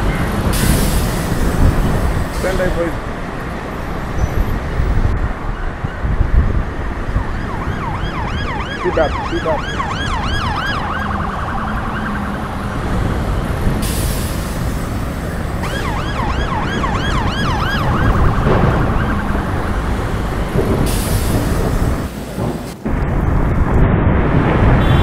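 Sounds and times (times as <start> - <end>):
road and wind noise: 0.0 - 25.0
siren yelping: 7.1 - 13.6, 15.6 - 20.0.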